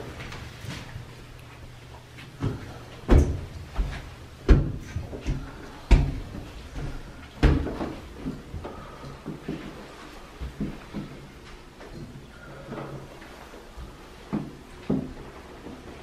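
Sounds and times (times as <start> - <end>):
heavy footsteps thudding: 2.1 - 11.4.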